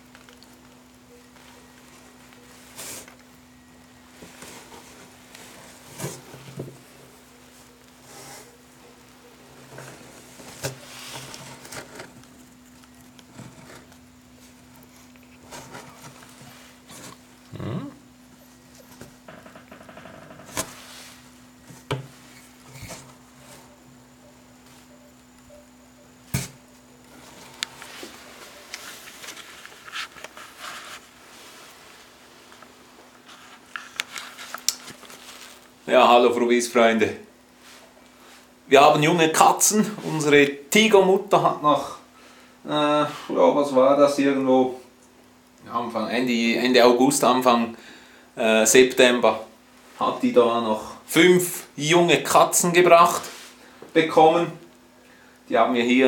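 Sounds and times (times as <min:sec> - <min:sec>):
rustling and scratching of kittens: 0:00.0 - 0:36.2, 0:52.6 - 0:53.8
steady low hum: 0:00.0 - 0:44.3.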